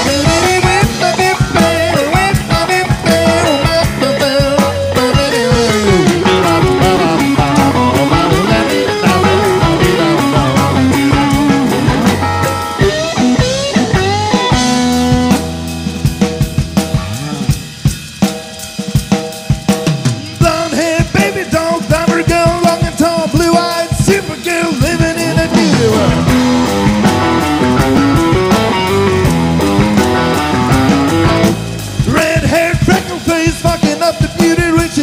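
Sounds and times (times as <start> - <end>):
drum hits: 0.0 - 35.0
live rock band playing: 0.0 - 35.0.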